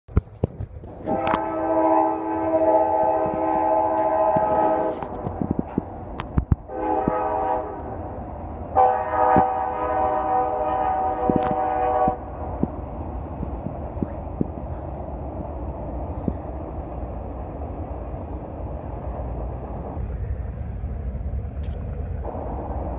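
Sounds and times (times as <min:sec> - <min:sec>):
passing train rumble: 0:00.1 - 0:22.9
locomotive air horn blasts: 0:01.0 - 0:05.3, 0:06.7 - 0:08.0, 0:08.7 - 0:12.3.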